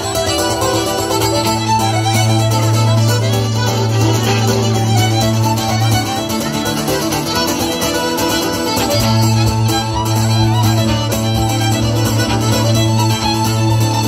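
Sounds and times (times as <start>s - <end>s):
accordion: 0.0s - 14.0s
acoustic guitar: 0.0s - 14.0s
fiddle: 0.0s - 14.0s.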